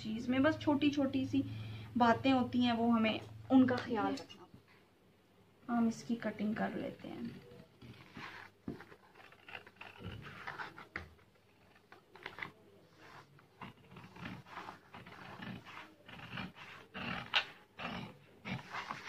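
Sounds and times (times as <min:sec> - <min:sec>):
scissors cutting paper: 0:07.3 - 0:17.6.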